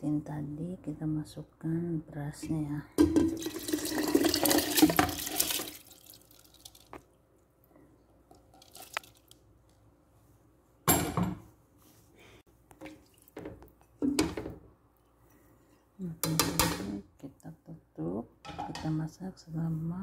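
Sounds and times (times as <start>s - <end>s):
splashes or knocks in pot: 3.0s - 7.1s
rice pouring into broth: 3.3s - 7.0s.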